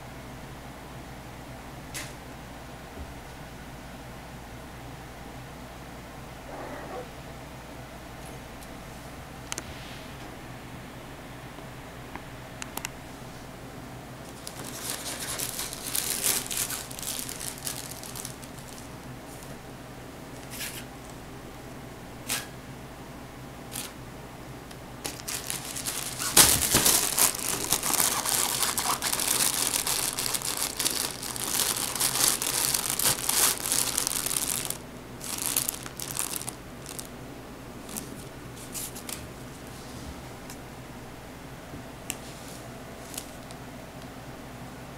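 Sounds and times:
vinyl tunnel crinkling and rustling: 14.2s - 19.6s, 25.0s - 37.2s, 37.8s - 39.7s, 42.2s - 43.7s.

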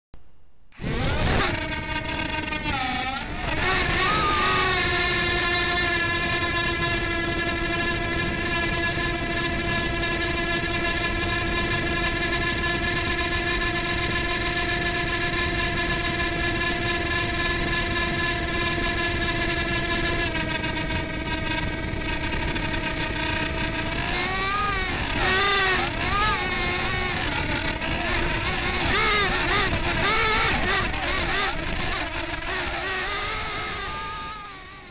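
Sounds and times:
drone motors whining: 0.7s - 34.9s.

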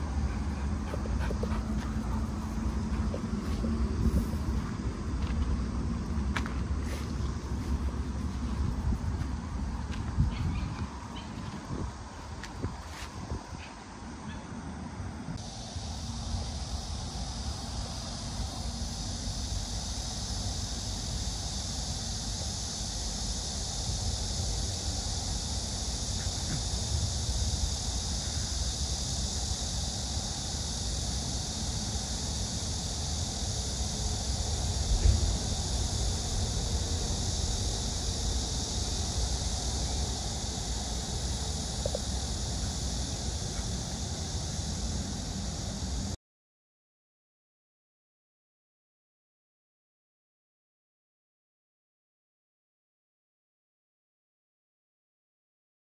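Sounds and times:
insects buzzing: 0.0s - 46.2s
wind rumble on microphone: 0.6s - 13.8s, 33.7s - 41.1s.

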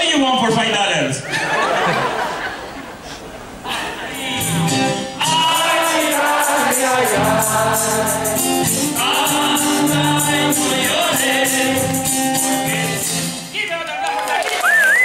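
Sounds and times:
acoustic guitar: 3.0s - 13.6s
two men singing together: 3.7s - 13.4s
conga drums: 4.2s - 13.4s.

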